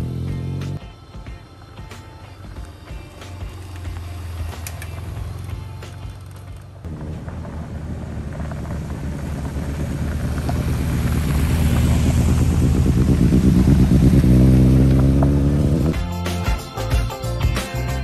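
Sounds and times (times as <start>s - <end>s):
music: 0.0s - 6.7s, 15.8s - 18.0s
motorcycles riding past on gravel: 0.0s - 15.9s.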